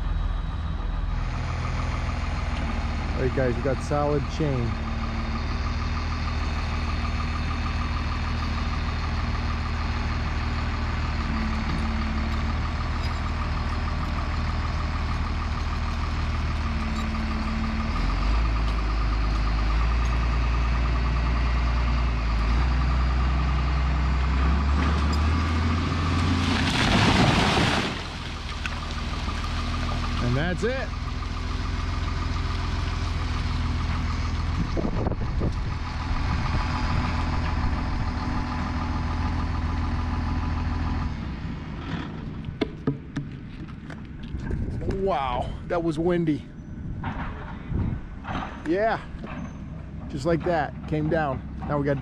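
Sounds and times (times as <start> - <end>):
heavy equipment diesel engine: 0.0 - 52.0
tree crashing down: 26.0 - 30.2
branches breaking: 26.2 - 29.9.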